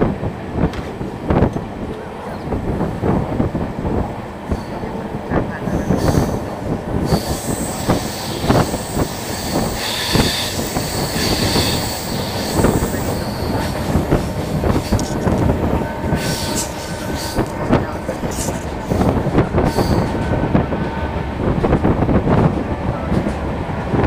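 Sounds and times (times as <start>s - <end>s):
train wheels rumbling on rails: 0.0s - 24.0s
clacks over rail joints: 0.6s - 3.5s
high wheel squeal: 7.0s - 13.8s.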